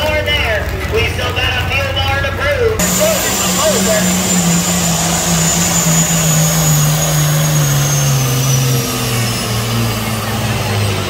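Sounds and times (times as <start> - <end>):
truck engine running hard: 0.0 - 11.0
faint high whine: 2.8 - 11.0.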